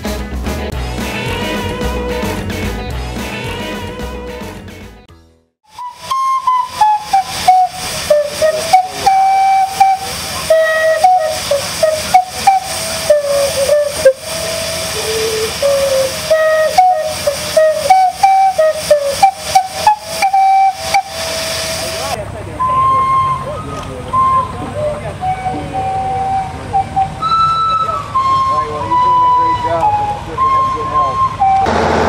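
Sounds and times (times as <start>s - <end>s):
steam calliope melody: 0.0s - 4.8s, 5.6s - 32.0s
hiss of steam: 5.8s - 22.2s.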